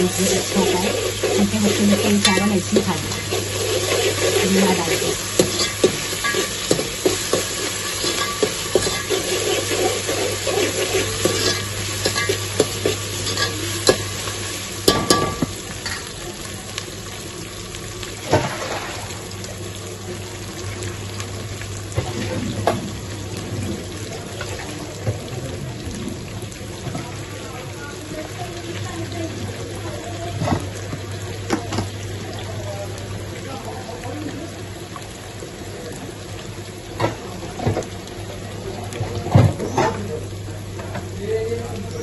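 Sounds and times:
onions sizzling in a pot: 0.0 - 42.0
spoon scraping a metal pot: 0.1 - 6.6, 7.8 - 12.4.

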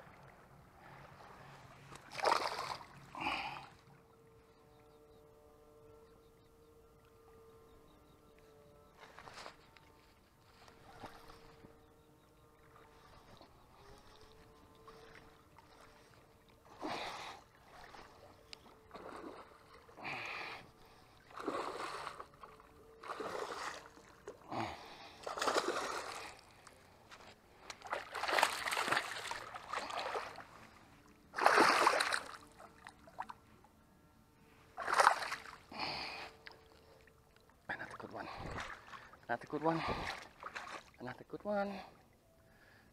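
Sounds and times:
fish splashing in water: 2.0 - 3.0, 25.2 - 26.7, 27.6 - 30.6, 31.3 - 33.3, 34.8 - 35.7.

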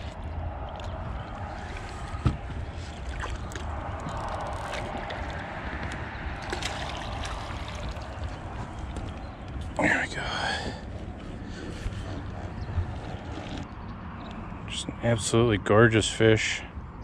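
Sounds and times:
water sloshing and splashing: 0.0 - 9.8.

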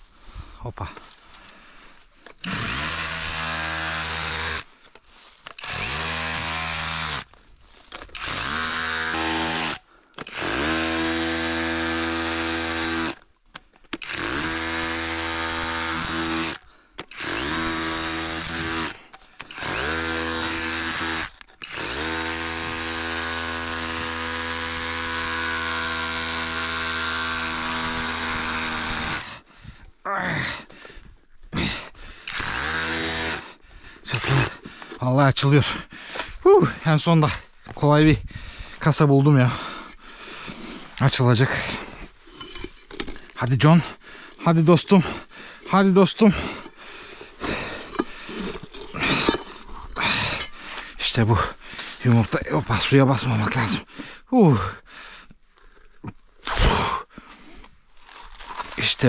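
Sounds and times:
power tool whining: 2.2 - 13.3, 13.9 - 29.4, 32.2 - 35.1, 39.3 - 52.4.

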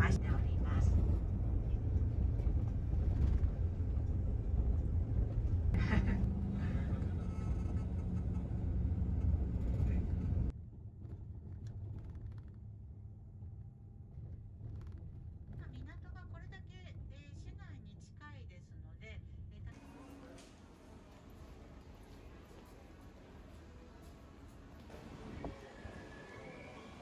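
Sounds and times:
bus engine and road rumble: 0.0 - 18.4, 19.4 - 27.0.

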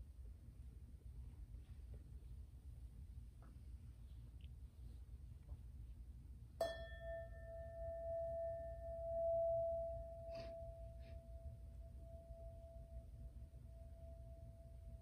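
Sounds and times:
singing bowl ringing: 6.6 - 15.0.

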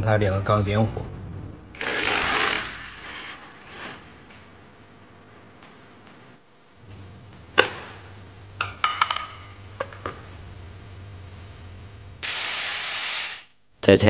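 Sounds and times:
faint steady hum: 0.0 - 14.0
loud steady hiss: 12.1 - 14.0.

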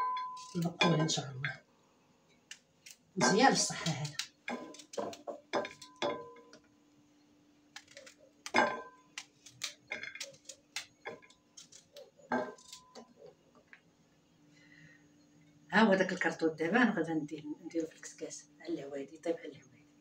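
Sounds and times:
knife slicing figs: 2.5 - 6.0, 7.7 - 13.1
slices tapping onto plate: 3.2 - 6.6.

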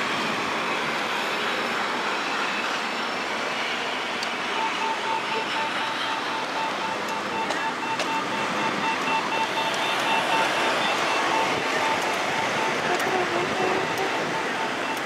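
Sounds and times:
street traffic noise: 0.0 - 15.0
crossing signal beeping: 4.5 - 15.0.

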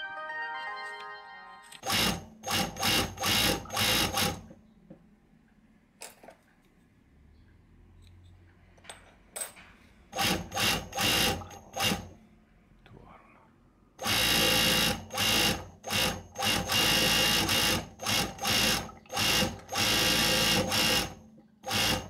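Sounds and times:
overlock sewing machine stitching: 1.8 - 4.5, 10.1 - 12.2, 14.0 - 22.0.

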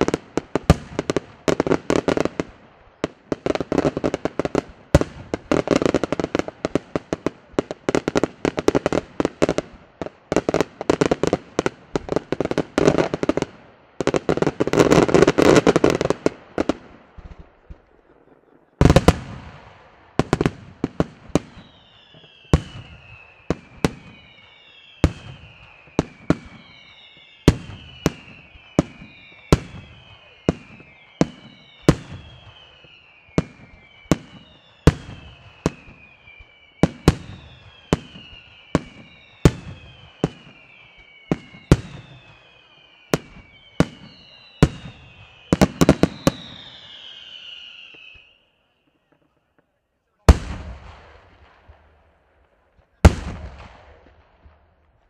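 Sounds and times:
firework bangs: 0.0 - 48.3, 50.2 - 55.0
firework whistles falling in pitch: 21.3 - 49.4.

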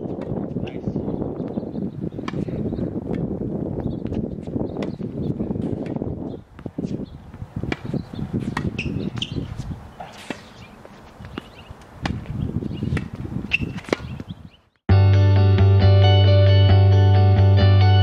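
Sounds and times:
tennis balls striking rackets: 0.0 - 0.8, 2.1 - 3.4, 4.0 - 14.4.

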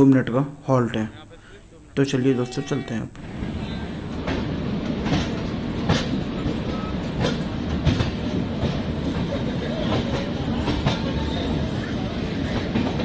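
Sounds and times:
train coach rumble: 3.2 - 13.0
wheels clacking over rail joints: 3.2 - 13.0.

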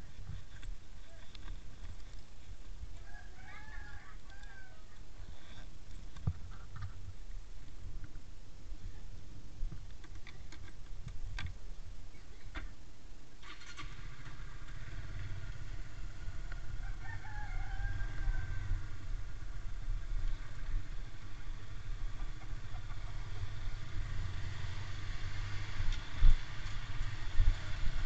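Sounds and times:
rooster crowing: 3.0 - 5.0, 16.3 - 19.2
motorcycle engine running: 13.8 - 16.9, 18.0 - 28.0.

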